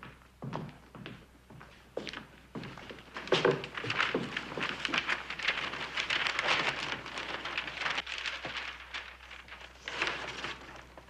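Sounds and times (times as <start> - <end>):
paper wrapping crinkling: 2.8 - 11.0.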